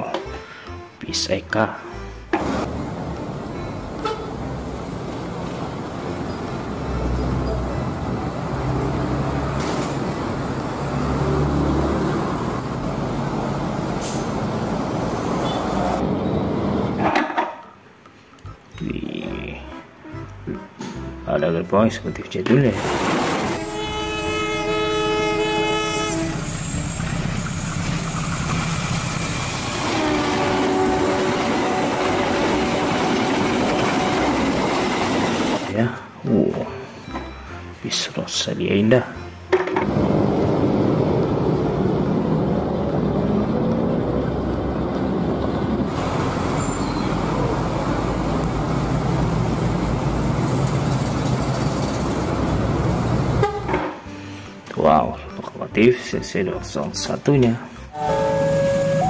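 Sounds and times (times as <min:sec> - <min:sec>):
road traffic noise: 0:01.9 - 0:18.6, 0:19.8 - 0:37.8, 0:39.2 - 0:54.7, 0:57.7 - 0:59.0
bus engine driving by: 0:02.4 - 0:17.0, 0:22.8 - 0:35.8, 0:39.8 - 0:54.2, 0:57.9 - 0:59.0
train rumbling on rails: 0:02.4 - 0:17.0, 0:22.8 - 0:35.7, 0:39.9 - 0:53.6
locomotive horn blast: 0:04.0 - 0:04.4, 0:15.4 - 0:16.1, 0:22.8 - 0:28.1, 0:29.5 - 0:34.5, 0:53.4 - 0:53.7, 0:57.9 - 0:59.0.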